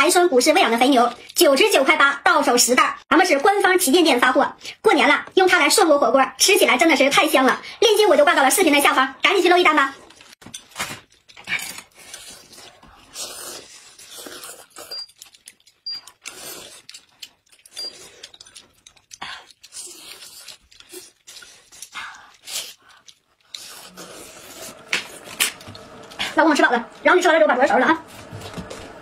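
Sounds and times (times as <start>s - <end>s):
slurping and chewing: 11.1s - 27.0s.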